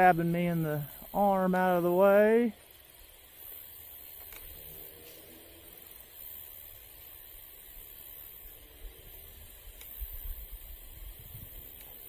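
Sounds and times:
outdoor hiss: 0.0 - 12.0
wind rumble on microphone: 10.0 - 11.8.

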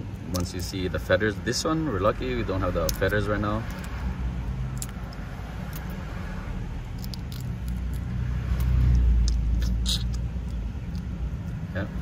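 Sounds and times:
eggshell cracking: 2.8 - 6.0, 6.8 - 11.6.

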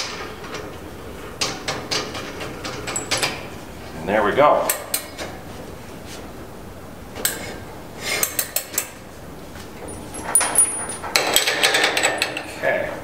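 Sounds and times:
metal clinks and clanks: 2.9 - 3.5, 9.8 - 12.5.

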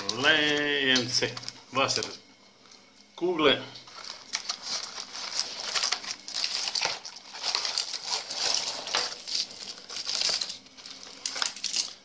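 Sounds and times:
plastic wrapping crinkling: 3.8 - 12.0
plastic lures clicking and rattling: 4.0 - 12.0.

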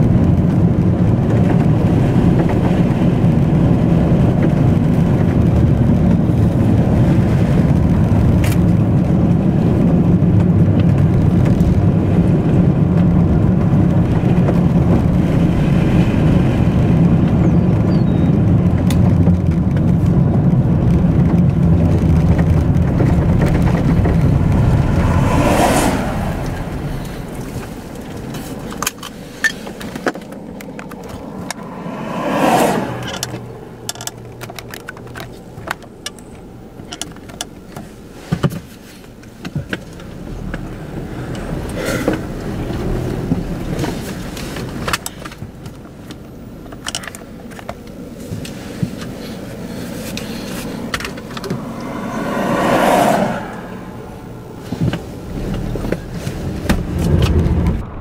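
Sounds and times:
low rumble: 0.0 - 28.8, 30.4 - 36.8, 50.4 - 58.0
vehicles driving on dirt road: 0.0 - 58.0.

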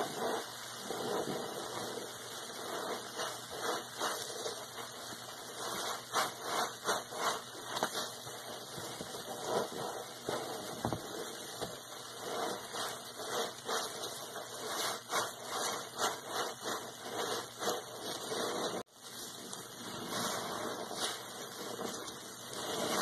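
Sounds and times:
sponge squelching in soapy water: 0.0 - 23.0.

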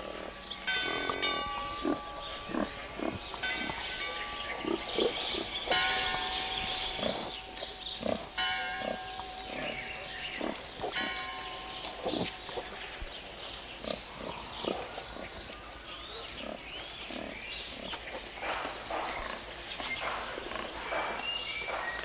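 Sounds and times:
pigs squealing: 0.0 - 6.0
pigs grunting: 0.0 - 22.0.

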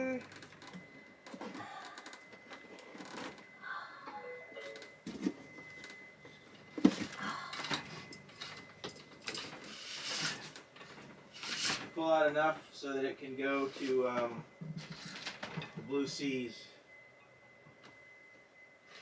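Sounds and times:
faint steady high tone: 0.0 - 19.0
cable insulation rustling and scraping: 8.3 - 12.6, 13.3 - 15.9.

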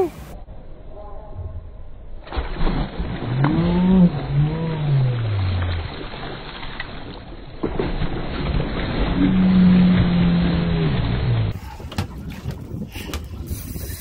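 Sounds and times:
long low tone: 0.0 - 2.2, 3.2 - 5.9, 9.0 - 11.6
water splashing and churning: 2.2 - 14.0
boat noise: 2.9 - 14.0.

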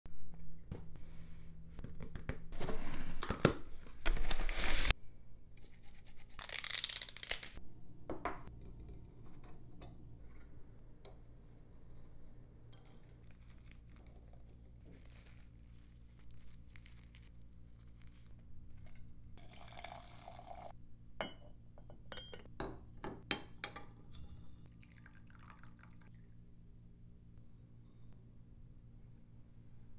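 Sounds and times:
paper crinkling: 2.6 - 4.9, 5.7 - 7.6, 13.2 - 18.9
handling of tin and paper filter: 4.0 - 4.9, 12.8 - 19.2
china cup and saucer clinks: 21.2 - 22.5.

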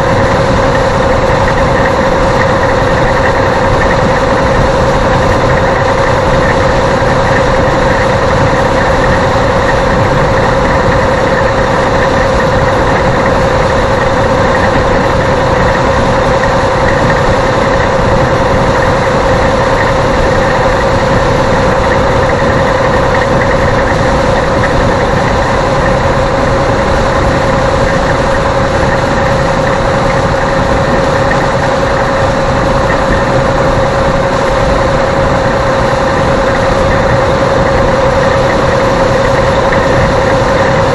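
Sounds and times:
mid-pitched hum: 0.0 - 40.9.

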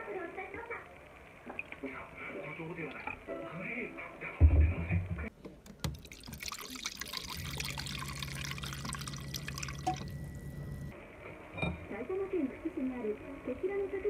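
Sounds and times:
water running into a bowl: 5.8 - 10.9
low steady hum: 6.1 - 13.4.

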